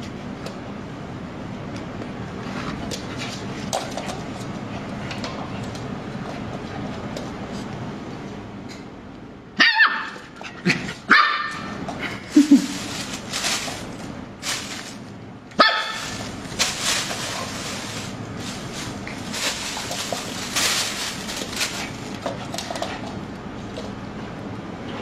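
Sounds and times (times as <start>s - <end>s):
puppy barking: 9.6s - 10.3s, 11.0s - 11.8s, 15.6s - 16.2s
plastic bag crinkling: 12.2s - 23.0s.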